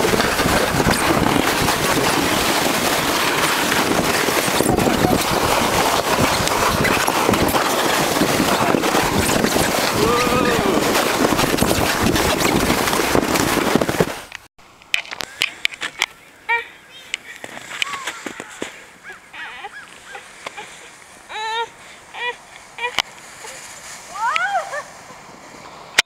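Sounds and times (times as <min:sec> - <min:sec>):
wind buffeting microphone: 0:00.0 - 0:14.4
sled scraping over snow: 0:00.0 - 0:14.5, 0:16.9 - 0:26.0.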